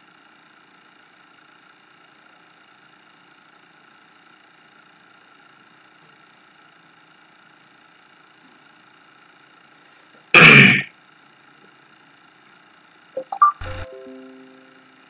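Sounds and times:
man clearing throat: 10.4 - 10.9
faint steady hum: 13.2 - 15.0.

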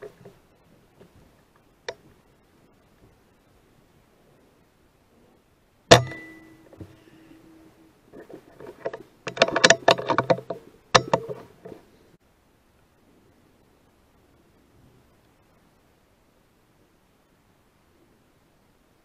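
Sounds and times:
clicking and rattling: 8.1 - 11.8.

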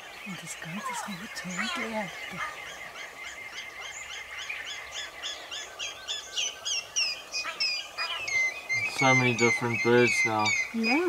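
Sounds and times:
bird whistling high notes: 7.4 - 11.0.

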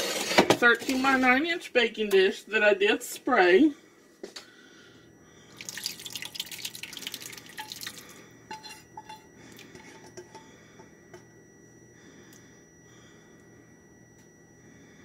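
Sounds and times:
sauce pouring into baking dish: 5.6 - 8.1
sauce dripping: 5.6 - 8.2
spatula scraping a pot: 8.5 - 10.4.

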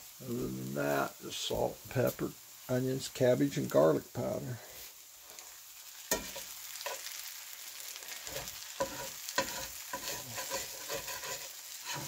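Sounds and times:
eggs sizzling in a skillet: 0.0 - 12.0
fork scraping a pan: 6.1 - 7.1, 8.0 - 12.0.

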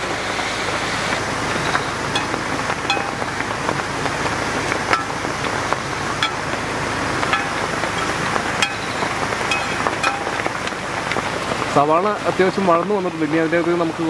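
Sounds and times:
onions sizzling in oil: 0.0 - 13.5
ladle clinking against wok: 2.1 - 3.4, 4.9 - 5.3, 6.2 - 6.5, 7.2 - 10.6.

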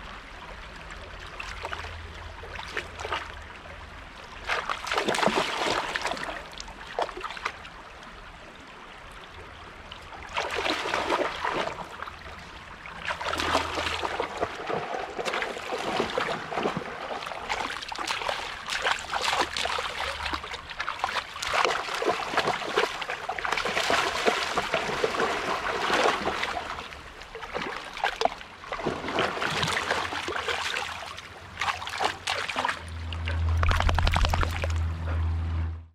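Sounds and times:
dogs splashing through stream: 1.2 - 3.5, 4.3 - 7.7, 10.2 - 35.2.

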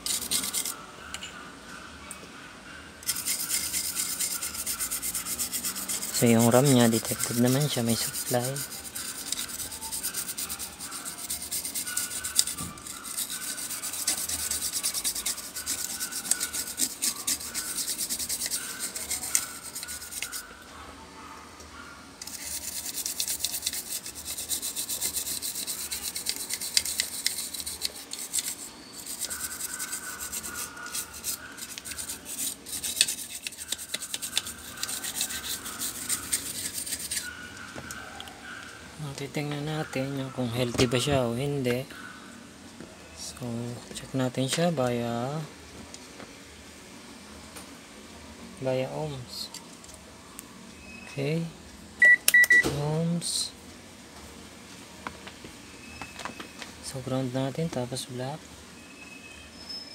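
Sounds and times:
toothbrush scrubbing circuit board: 0.0 - 0.8, 3.0 - 20.5, 22.2 - 37.4.

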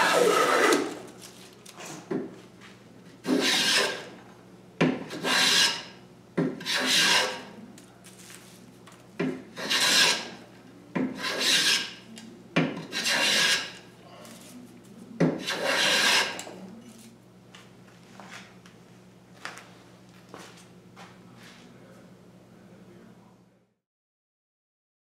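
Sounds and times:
hand plane cutting wood: 0.0 - 1.1, 3.2 - 4.1, 5.0 - 5.9, 6.6 - 7.6, 9.6 - 10.4, 11.0 - 12.0, 12.8 - 13.8, 15.3 - 16.5.

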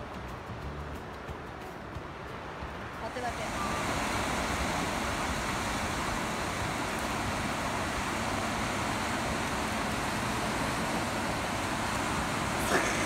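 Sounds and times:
wind: 0.0 - 13.0
surf rushing: 2.7 - 13.0.

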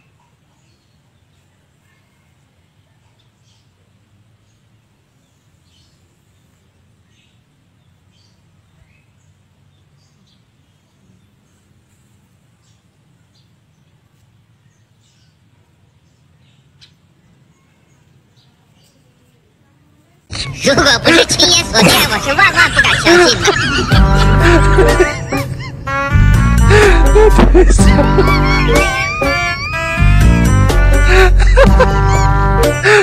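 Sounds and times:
faint bird chirps: 0.0 - 3.8, 16.2 - 19.2
low steady hum: 20.4 - 32.9.

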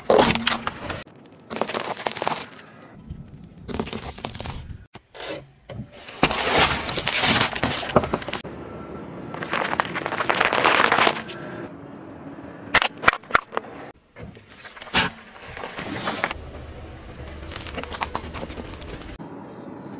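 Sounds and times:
tyre crushing objects on asphalt: 0.0 - 2.7, 6.1 - 8.4, 9.3 - 11.4.

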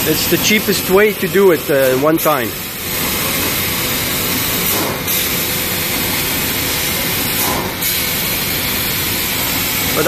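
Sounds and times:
laser cutter hissing roar: 0.0 - 10.0.

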